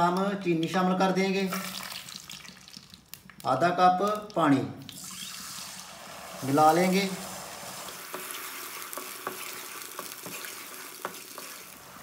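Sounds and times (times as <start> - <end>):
syrup sizzling hiss: 4.9 - 12.0
wooden spoon knocking on pan: 8.0 - 11.6.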